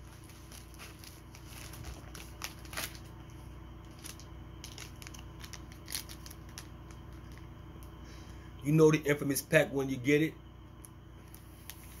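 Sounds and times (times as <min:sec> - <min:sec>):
packaging crinkling: 0:00.0 - 0:07.6.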